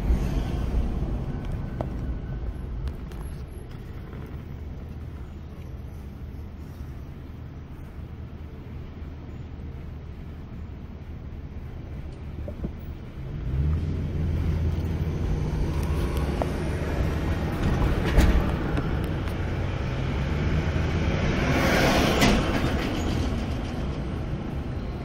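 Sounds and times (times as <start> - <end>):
rushing noise: 0.0 - 5.2
tyre and road noise: 0.0 - 25.0
car engine pulling away: 13.1 - 24.8.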